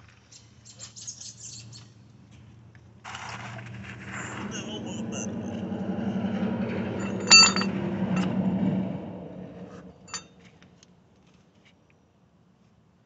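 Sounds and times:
low steady hum: 3.8s - 10.2s
metallic clinks: 7.0s - 8.3s.

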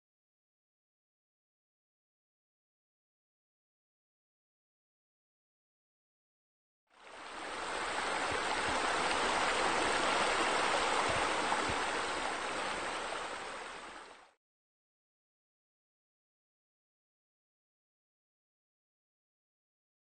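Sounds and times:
water falling into pool: 7.4s - 14.0s.

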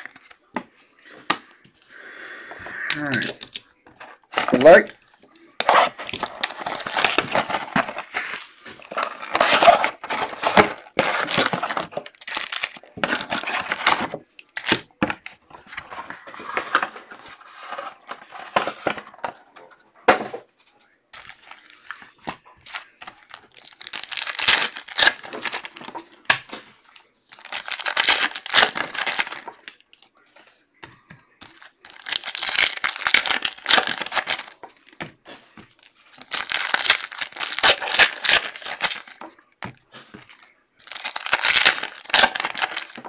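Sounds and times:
foil wrappers tearing and crinkling: 2.9s - 5.0s, 5.6s - 14.8s, 21.2s - 26.6s, 27.3s - 29.8s, 31.5s - 35.0s, 35.8s - 39.2s, 40.2s - 43.0s.

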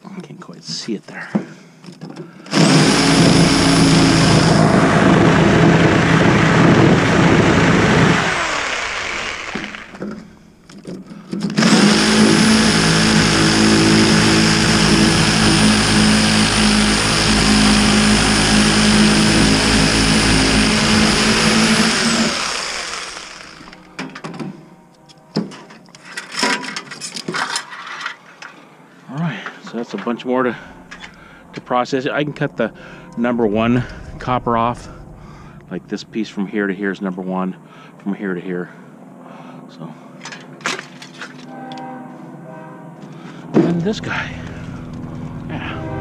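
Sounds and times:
reciprocating saw cutting metal: 2.5s - 10.0s, 11.6s - 24.0s.

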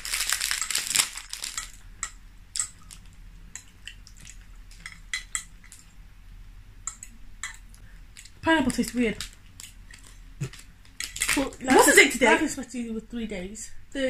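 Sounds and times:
plastic wrapper crinkling: 0.0s - 1.8s, 8.2s - 11.6s
fork clicking in a bowl: 1.6s - 2.8s.

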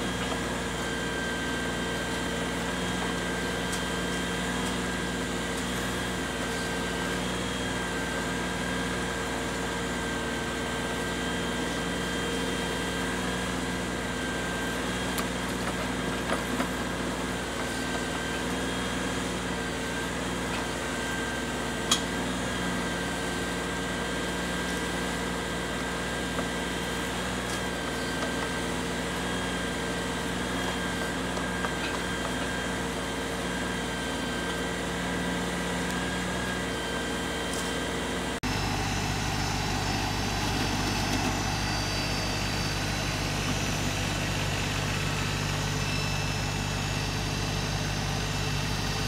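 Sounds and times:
diesel tractor engine running: 0.0s - 49.0s
steady whine: 26.2s - 49.0s.

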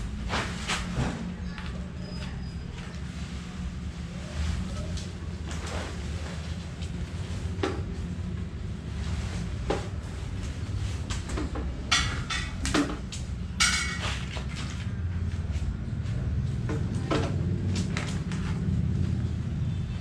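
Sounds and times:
tent poles and fabric handled: 2.8s - 16.3s.

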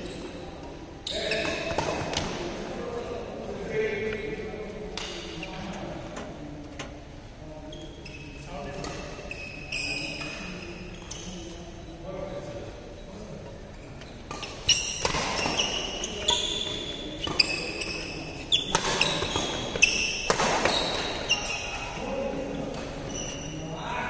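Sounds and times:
shoes squeaking on court floor: 0.0s - 2.6s, 7.6s - 12.0s, 12.9s - 23.6s
rackets hitting shuttlecock: 14.3s - 16.4s, 17.2s - 22.0s.

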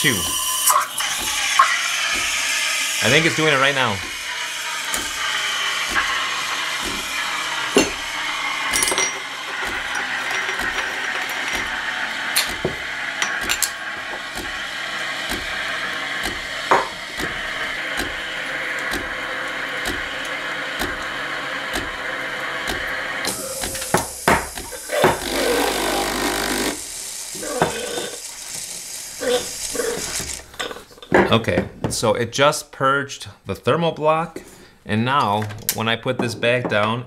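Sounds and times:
pump pulsing: 0.0s - 30.6s
small air pump: 0.0s - 30.9s
steam hissing: 0.0s - 30.9s
sharp clicks and knocks: 6.8s - 14.6s, 18.8s - 19.2s.

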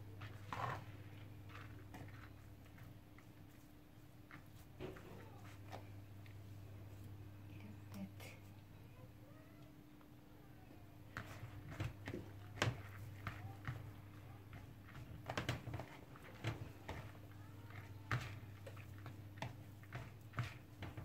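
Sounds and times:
hands mixing bulgur in plastic bowl: 0.0s - 8.5s, 11.0s - 21.0s
low steady hum: 0.0s - 21.0s.

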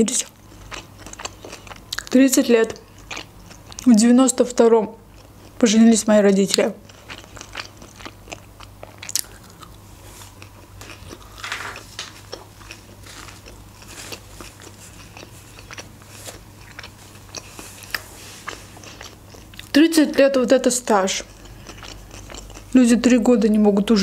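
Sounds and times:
chewing with wet mouth clicks: 0.5s - 4.0s, 6.5s - 9.8s, 13.4s - 19.8s, 21.2s - 22.7s.

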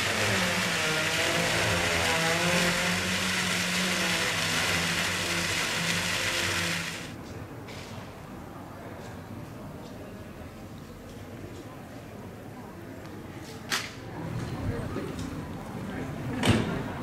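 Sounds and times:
fountain water splashing: 0.0s - 7.1s.

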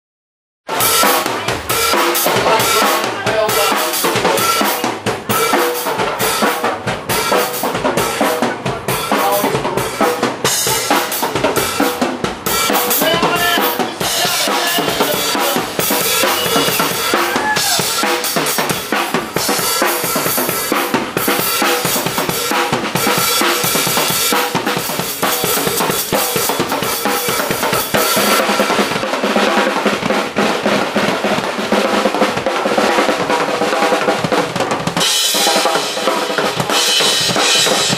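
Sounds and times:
drum kit solo: 0.7s - 37.9s.

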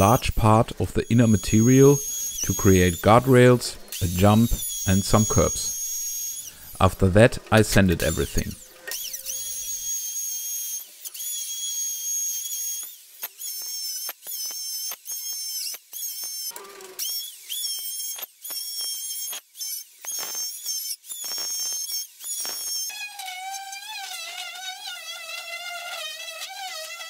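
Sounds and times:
electric router whining: 0.0s - 20.3s.

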